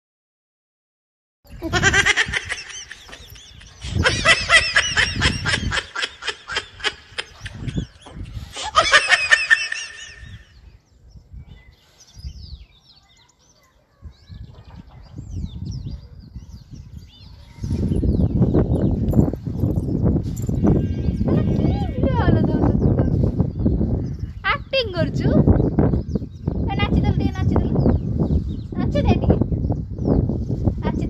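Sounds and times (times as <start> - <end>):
laughter: 1.6 - 10.5.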